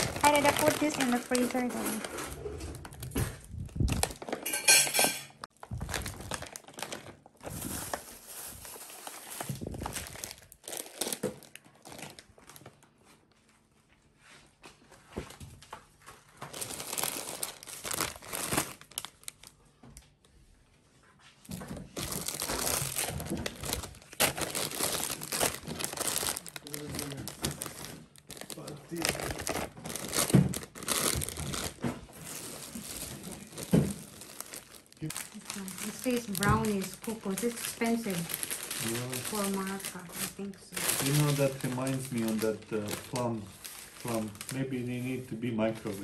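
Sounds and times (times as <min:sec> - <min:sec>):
plastic bags crinkling: 0:00.0 - 0:13.4, 0:15.3 - 0:19.7, 0:21.5 - 0:46.0.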